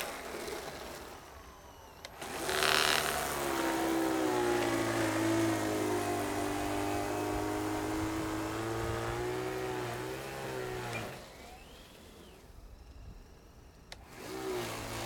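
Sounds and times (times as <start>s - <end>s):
snow blower motor running: 0.0s - 15.0s.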